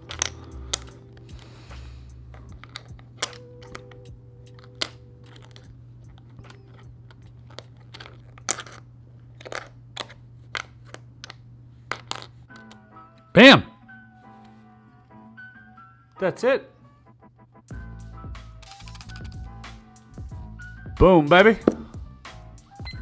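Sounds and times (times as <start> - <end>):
plastic puzzle pieces clicking: 0.0 - 1.5, 2.3 - 8.8, 9.4 - 12.8
steady low hum: 0.0 - 13.1.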